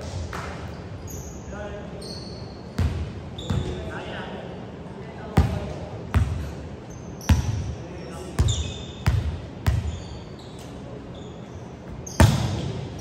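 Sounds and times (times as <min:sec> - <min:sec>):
volleyball bouncing on gym floor: 0:12.2 - 0:13.0.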